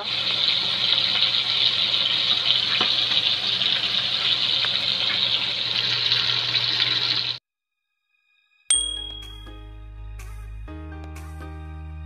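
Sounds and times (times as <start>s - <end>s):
fish sizzling in hot oil: 0.0s - 7.4s
oil popping: 0.2s - 6.8s.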